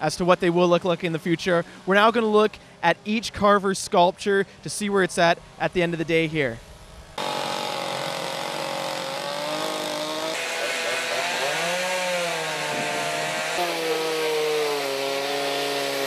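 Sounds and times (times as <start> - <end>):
chainsaws cutting wood: 7.2 - 16.0.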